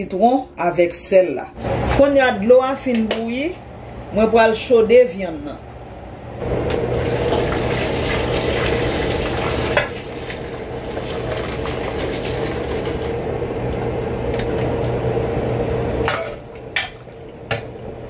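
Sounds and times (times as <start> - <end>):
boiling water pouring and splashing: 6.9 - 13.8.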